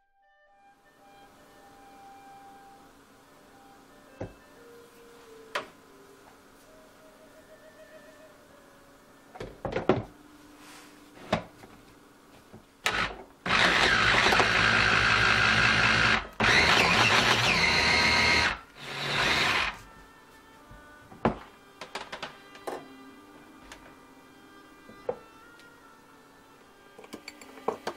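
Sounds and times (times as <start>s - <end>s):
food chopper motor whirring: 12.9s - 19.8s.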